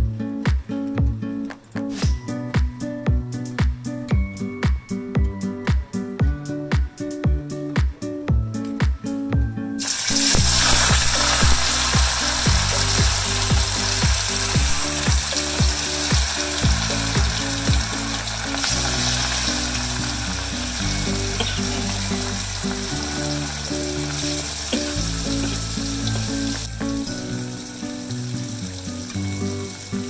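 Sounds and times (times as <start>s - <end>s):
background music with bass beat: 0.0s - 9.6s, 10.2s - 27.8s
fish sizzling in hot oil: 9.8s - 30.0s.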